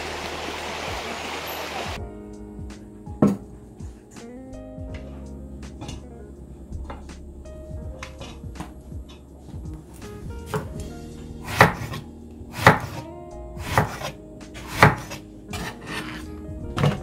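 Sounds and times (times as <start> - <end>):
knife slicing eggplant: 11.4 - 13.0, 13.6 - 16.2.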